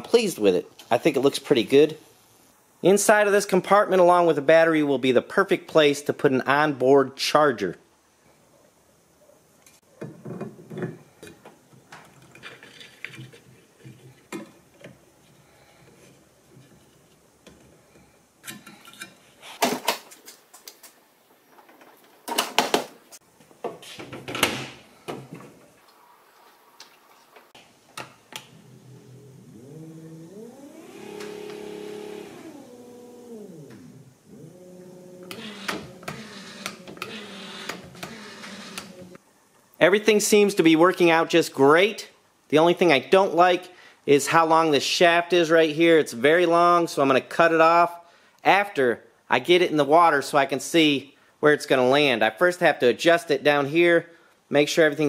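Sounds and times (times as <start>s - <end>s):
electric motor whine: 28.6s - 34.0s.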